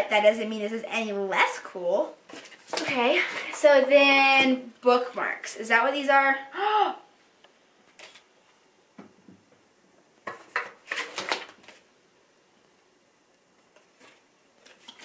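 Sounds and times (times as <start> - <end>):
card and packaging rustling: 7.9 - 8.3, 10.3 - 11.9.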